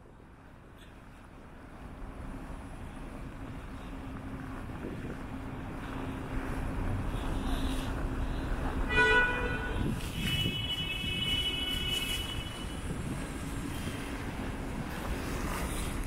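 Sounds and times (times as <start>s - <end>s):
street traffic rumbling: 0.0s - 16.0s
car horn toot: 8.9s - 12.8s.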